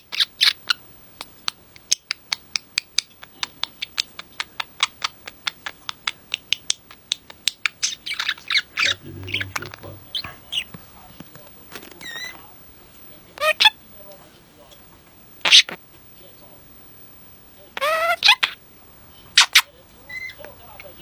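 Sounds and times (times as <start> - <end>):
budgerigar warbling chatter: 8.1 - 10.7.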